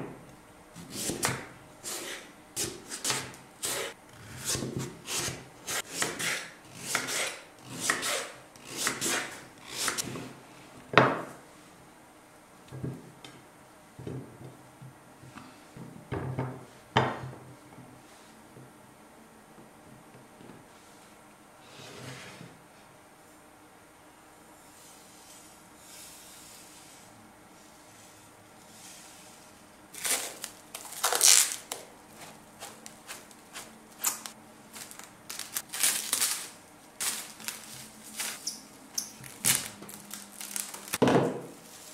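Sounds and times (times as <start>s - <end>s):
cling film crackling rustle: 30.0s - 38.5s, 39.1s - 41.0s.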